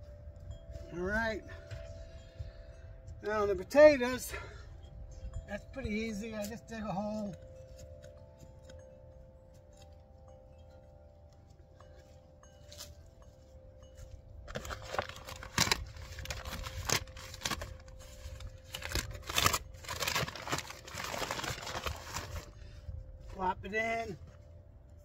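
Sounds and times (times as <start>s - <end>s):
wind chimes ringing: 0.0s - 25.0s
rustling and scraping with crackles: 5.8s - 25.0s.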